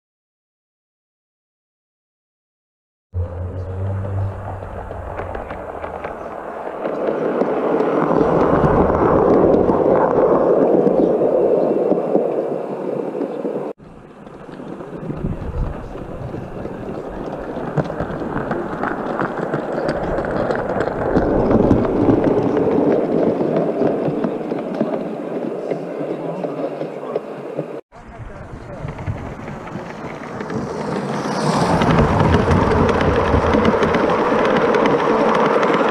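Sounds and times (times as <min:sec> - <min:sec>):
model train wheels on rails: 0:13.2 - 0:35.9.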